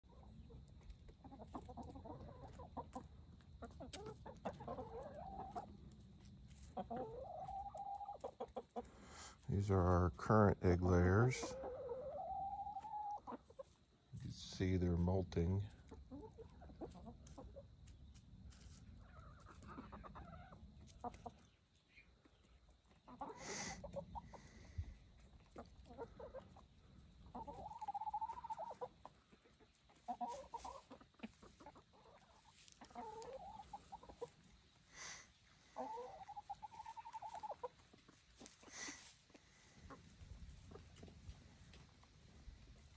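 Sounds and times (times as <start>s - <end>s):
hens clucking softly: 0.1s - 42.9s
hens drawn-out calls: 6.7s - 13.6s, 27.3s - 29.2s.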